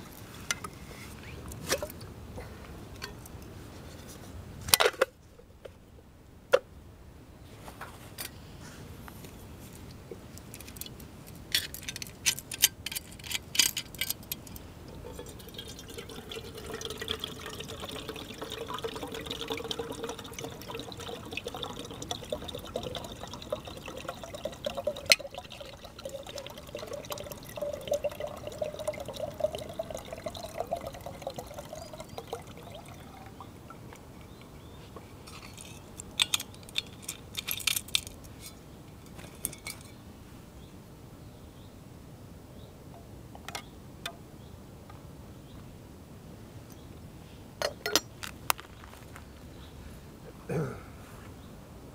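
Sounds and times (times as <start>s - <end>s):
water pouring into metal pot: 14.9s - 33.9s
metal cookware clinking: 47.6s - 48.1s.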